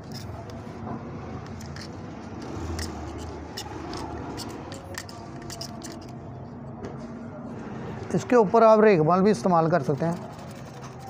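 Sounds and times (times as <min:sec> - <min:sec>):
knife blade scraping: 0:00.0 - 0:00.6, 0:01.4 - 0:06.2, 0:09.8 - 0:11.0.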